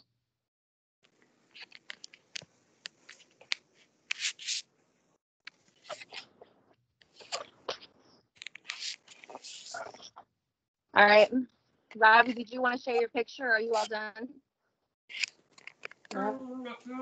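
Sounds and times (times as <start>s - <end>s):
pencil scratching on paper: 4.1s - 4.6s, 8.7s - 10.0s
pencil clicks and taps: 15.1s - 16.1s.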